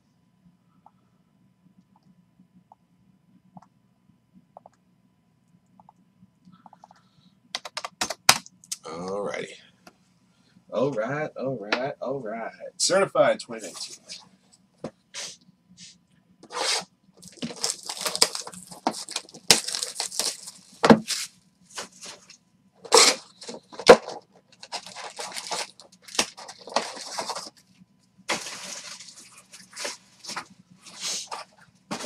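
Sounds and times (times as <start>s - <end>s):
plastic wrap crinkling: 16.4s - 27.6s, 28.3s - 32.0s.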